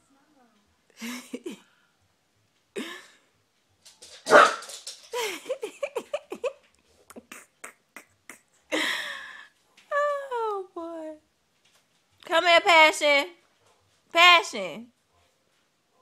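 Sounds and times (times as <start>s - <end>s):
dog barking: 4.2s - 4.7s, 15.1s - 16.0s.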